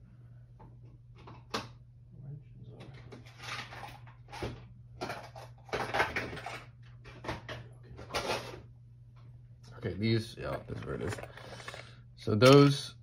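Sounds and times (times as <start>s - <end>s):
plastic boxes rattling and clattering: 3.2s - 8.6s, 10.4s - 12.6s.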